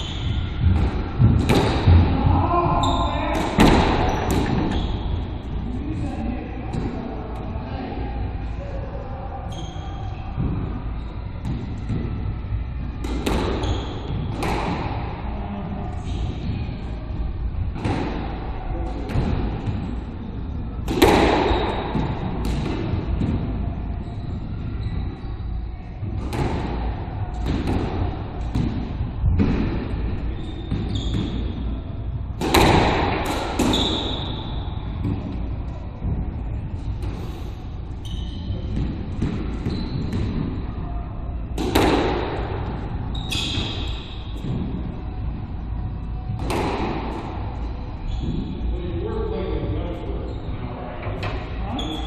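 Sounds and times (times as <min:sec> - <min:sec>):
shoe squeaks on hardwood floor: 0:00.0 - 0:00.5, 0:04.1 - 0:05.3, 0:13.6 - 0:14.1, 0:30.3 - 0:31.6, 0:33.7 - 0:34.8, 0:38.0 - 0:38.8, 0:39.5 - 0:40.3, 0:43.1 - 0:44.3, 0:48.0 - 0:48.6, 0:51.7 - 0:52.0
squash ball struck by racquets: 0:00.0 - 0:05.2, 0:10.4 - 0:15.2, 0:17.7 - 0:25.2, 0:26.0 - 0:40.8, 0:41.4 - 0:48.6
squash ball smacking walls: 0:00.6 - 0:02.4, 0:03.2 - 0:04.8, 0:20.8 - 0:23.5, 0:32.3 - 0:36.2, 0:38.7 - 0:40.6, 0:41.6 - 0:45.0, 0:46.3 - 0:47.5.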